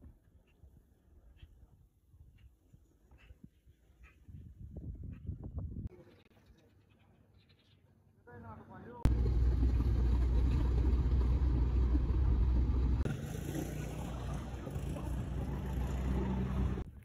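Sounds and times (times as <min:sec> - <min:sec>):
car cabin road and engine rumble: 0:09.1 - 0:16.8.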